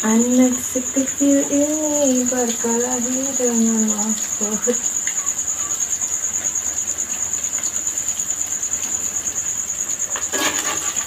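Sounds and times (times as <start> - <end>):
cricket trilling: 0.0 - 11.0
metal spatula scraping pan: 10.2 - 11.0.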